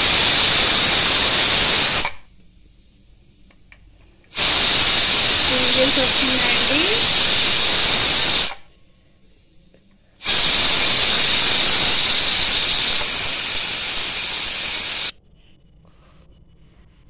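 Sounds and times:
pressure cooker steam hissing: 0.0 - 2.2, 4.3 - 8.7, 10.2 - 15.1.

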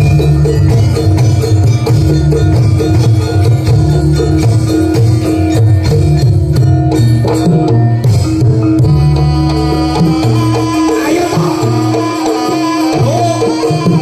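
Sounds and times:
hand drums beating: 0.0 - 14.0
held ringing tone: 0.0 - 14.0
pitched instruments: 0.0 - 14.0.

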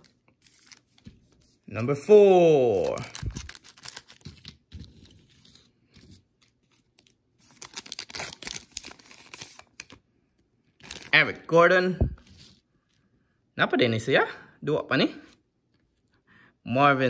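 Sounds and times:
card wrapper tearing and crinkling: 0.0 - 1.1, 2.7 - 5.6, 6.4 - 10.0, 10.8 - 11.2.

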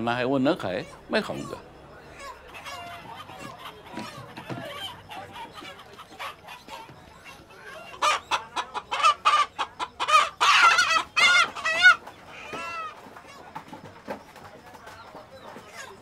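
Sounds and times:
chicken squawking: 0.6 - 13.5.

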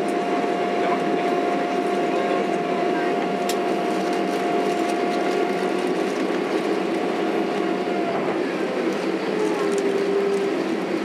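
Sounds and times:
jet engines whining in cabin: 0.0 - 11.0.

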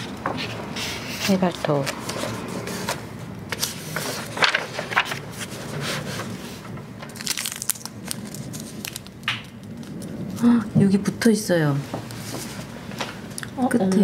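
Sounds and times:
seed packet crinkling: 7.0 - 10.5.

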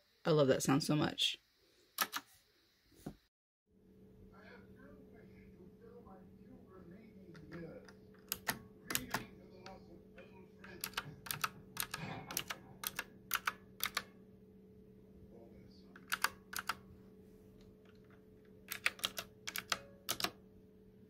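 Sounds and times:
mechanical keyboard clicks: 2.0 - 2.2, 8.2 - 9.3, 10.6 - 14.1, 16.0 - 16.8, 18.7 - 20.4.

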